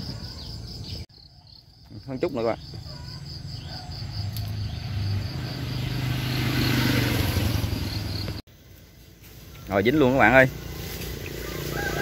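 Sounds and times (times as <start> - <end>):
crickets pulsing: 0.0 - 12.0
vehicle engine passing by: 3.2 - 12.0.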